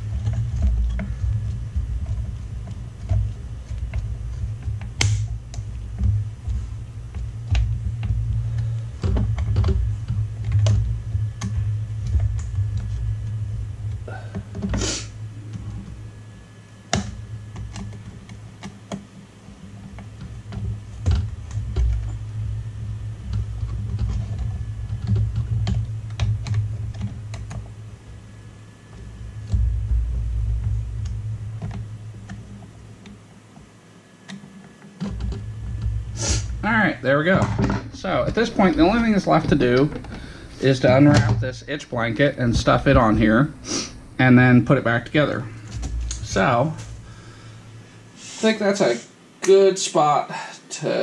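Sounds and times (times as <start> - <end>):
low rumble: 20.4 - 32.9, 35.2 - 48.2.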